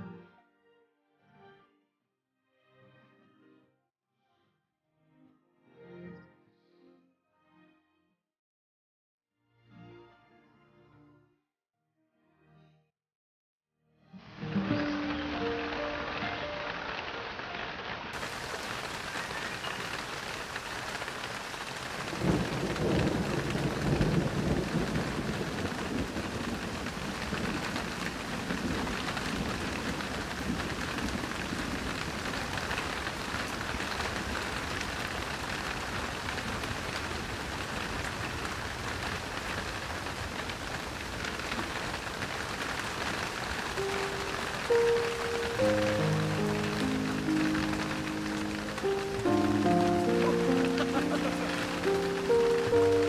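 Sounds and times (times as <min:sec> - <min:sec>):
heavy rain: 0:14.2 - 0:53.0
thunderclap with low rumble: 0:18.2 - 0:42.2.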